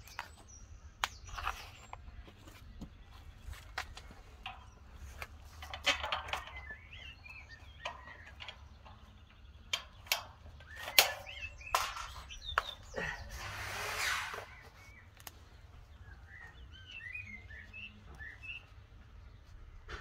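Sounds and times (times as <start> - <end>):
birds chirping: 0.0 - 20.0
metal parts clicking and knocking: 3.8 - 12.8.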